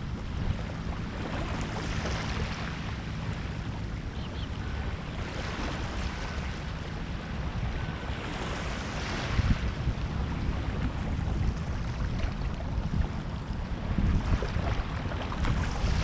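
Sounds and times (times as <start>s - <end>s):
small waves washing on shore: 0.0s - 16.0s
wind rumbling on microphone: 0.0s - 16.0s.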